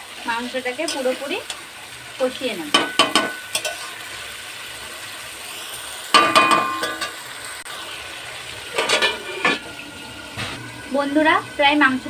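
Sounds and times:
meat sizzling in a pan: 0:00.0 - 0:12.0
metallic clatter of spatula on pan: 0:02.7 - 0:04.0, 0:06.1 - 0:07.2, 0:08.8 - 0:09.6
spatula scraping a pan: 0:02.7 - 0:04.2, 0:08.7 - 0:09.7.

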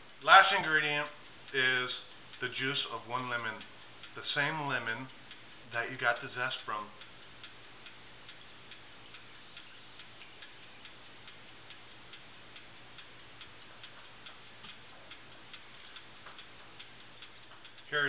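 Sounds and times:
clock ticking: 0:00.0 - 0:18.0.

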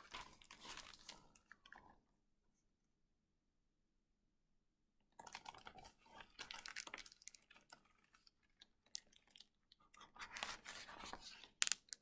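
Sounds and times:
book pages rustling: 0:00.0 - 0:01.4, 0:10.0 - 0:11.6.

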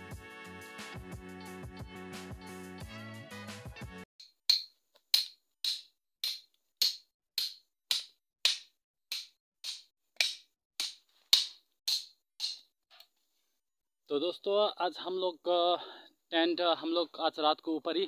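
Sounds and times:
machete chopping wood: 0:04.5 - 0:12.6.

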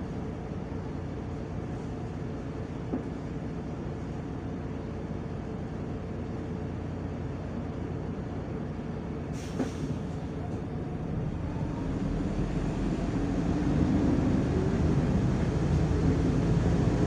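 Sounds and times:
bus engine idling and revving: 0:00.0 - 0:17.0
short hiss: 0:09.4 - 0:10.1.

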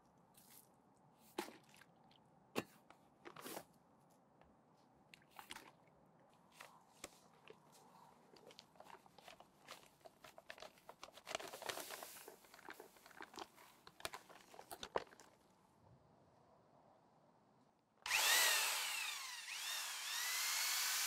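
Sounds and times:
paper sack crinkling: 0:06.6 - 0:15.4.

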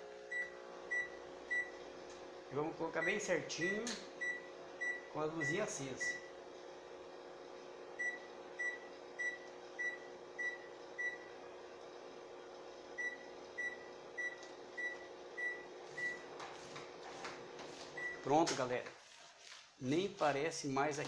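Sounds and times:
washing machine beeps: 0:00.3 - 0:01.8, 0:03.0 - 0:06.3, 0:08.0 - 0:11.3, 0:13.0 - 0:16.3, 0:18.0 - 0:18.3.

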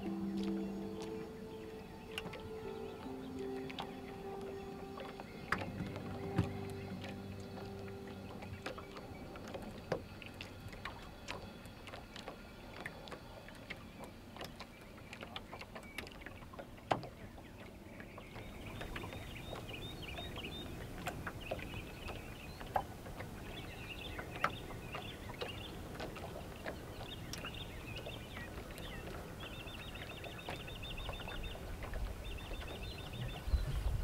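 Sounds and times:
birds chirping: 0:00.0 - 0:34.0
water lapping against boat hull: 0:00.0 - 0:34.0.

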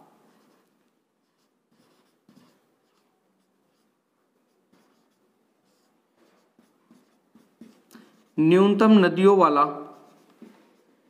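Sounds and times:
marker writing on whiteboard: 0:00.0 - 0:08.8, 0:09.7 - 0:11.0.

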